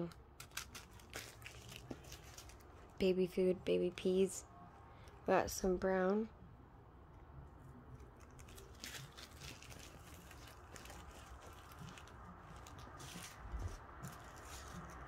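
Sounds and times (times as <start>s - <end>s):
plastic bags crinkling: 0.4s - 2.7s, 8.0s - 15.0s
beads shifting in bags: 8.2s - 15.0s.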